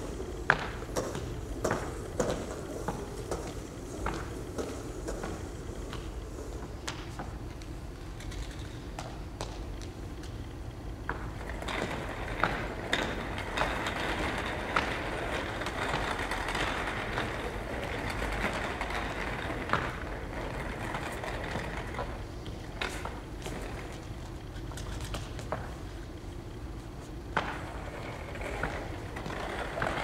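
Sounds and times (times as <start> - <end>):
high-heeled footsteps: 0.0 - 10.4
toy wheels rolling on wooden floor: 11.1 - 25.7, 27.4 - 30.0.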